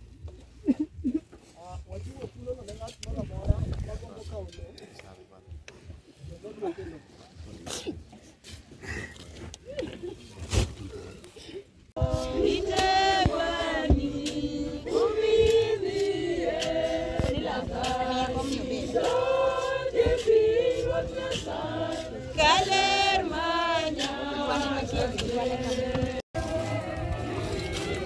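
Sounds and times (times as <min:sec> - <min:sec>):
group of voices singing: 0:12.0 - 0:28.0.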